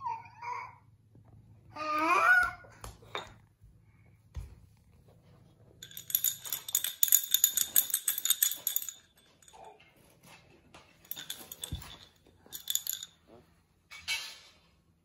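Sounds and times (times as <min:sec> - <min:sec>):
bell in toy ball jingling: 0:05.8 - 0:09.7, 0:11.0 - 0:13.2.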